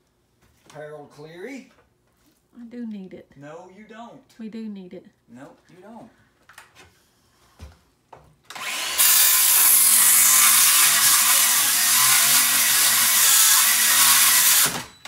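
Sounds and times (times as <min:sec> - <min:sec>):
power saw cutting wood: 0:08.5 - 0:15.0.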